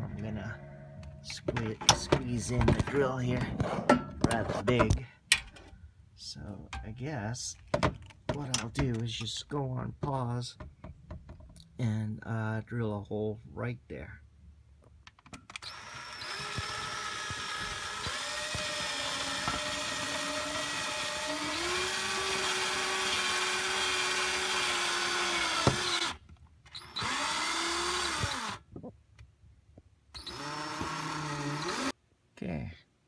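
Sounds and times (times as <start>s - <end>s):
power drill boring through metal: 15.6s - 28.6s, 30.2s - 32.0s.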